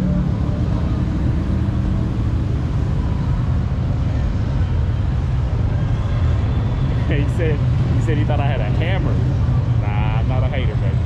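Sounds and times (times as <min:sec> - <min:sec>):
motorcycle engines rumbling: 0:00.0 - 0:11.0.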